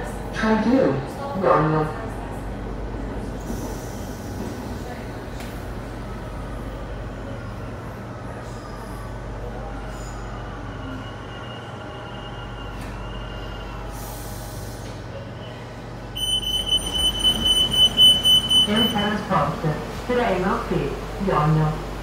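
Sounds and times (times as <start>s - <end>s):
wheels rumbling on rails: 14.2s - 22.0s
shrill high-pitched pulsing tone: 16.2s - 19.1s.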